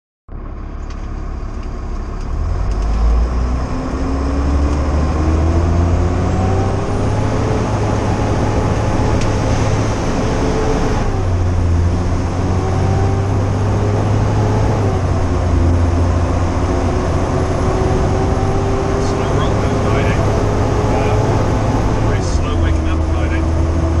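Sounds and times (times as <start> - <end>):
heavy engine rumble: 0.3 - 24.0
tyre and road noise: 0.3 - 24.0.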